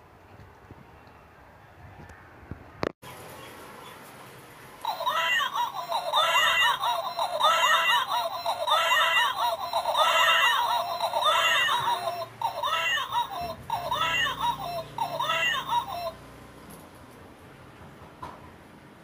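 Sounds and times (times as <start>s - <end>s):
toy doll electronic crying: 4.8s - 16.2s.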